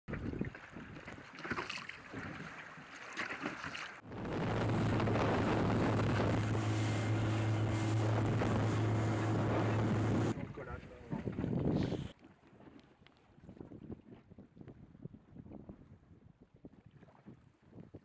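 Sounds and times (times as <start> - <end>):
wind on microphone: 0.1 - 1.2, 4.0 - 12.1, 13.4 - 18.0
boat engine droning: 4.0 - 10.4
rushing water spray: 4.2 - 10.4.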